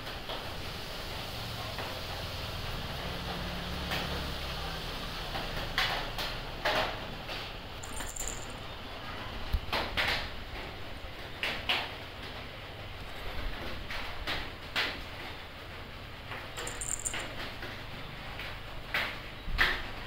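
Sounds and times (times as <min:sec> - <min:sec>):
collar bell tinkle: 0:07.8 - 0:08.6, 0:16.6 - 0:17.3.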